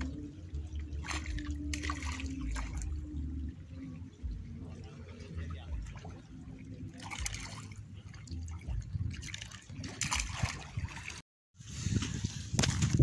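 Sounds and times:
water splashing: 0:00.0 - 0:11.2
fish thrashing at the surface: 0:01.0 - 0:02.9, 0:08.6 - 0:11.2.

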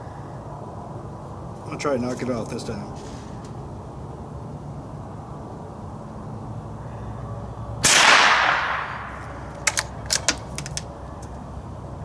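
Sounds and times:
rifle shot with echo: 0:07.8 - 0:09.2
rifle bolt metallic clicks: 0:09.5 - 0:11.4.

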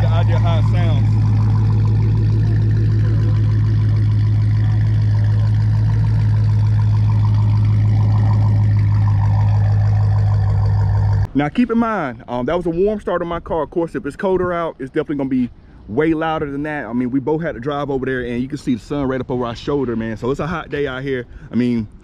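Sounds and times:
car engine idling: 0:00.0 - 0:11.3.

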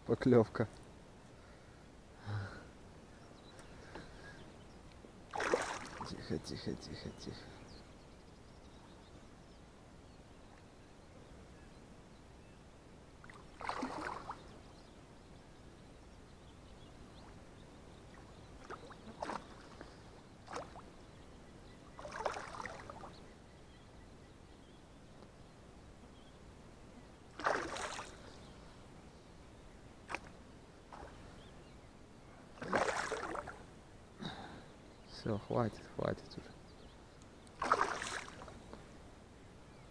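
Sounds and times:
fish splashing at water surface: 0:05.3 - 0:06.1, 0:13.6 - 0:14.4, 0:22.0 - 0:23.0, 0:27.4 - 0:28.2, 0:32.6 - 0:33.6, 0:37.6 - 0:38.5.

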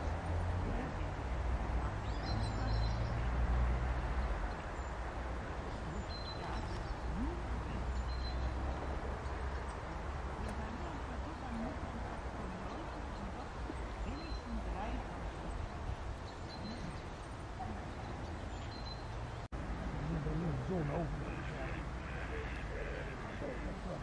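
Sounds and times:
small birds chirping: 0:01.8 - 0:03.4, 0:04.0 - 0:19.5.

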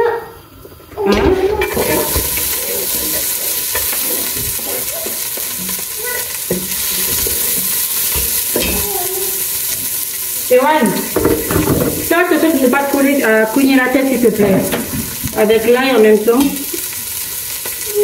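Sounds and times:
onions sizzling in a pot: 0:00.0 - 0:18.0
utensil scraping a pot: 0:01.6 - 0:08.9.

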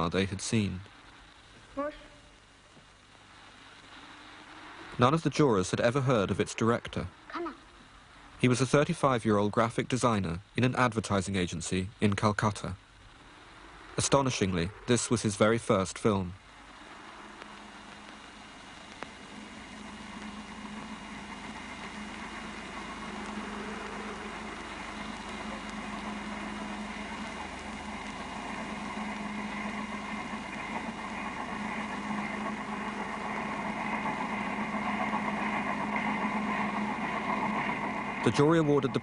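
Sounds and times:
engine drone with low hum: 0:13.3 - 0:39.0.

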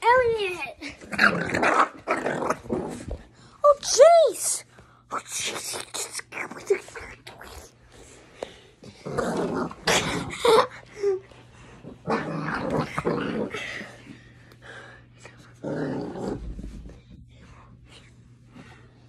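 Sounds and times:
puppy growling: 0:00.8 - 0:03.3, 0:05.1 - 0:07.8, 0:08.8 - 0:14.2, 0:15.4 - 0:17.2.

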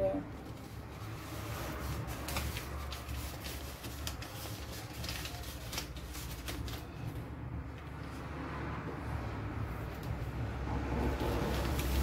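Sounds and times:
wallpaper crinkling and rustling: 0:00.0 - 0:08.3, 0:10.8 - 0:12.0.

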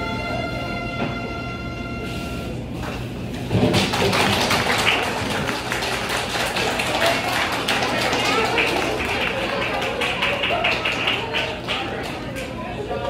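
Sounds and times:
audience applauding: 0:03.4 - 0:13.0.

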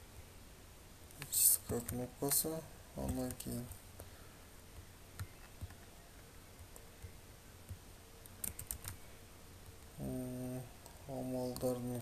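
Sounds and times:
mouse and keyboard clicks: 0:06.6 - 0:09.0.

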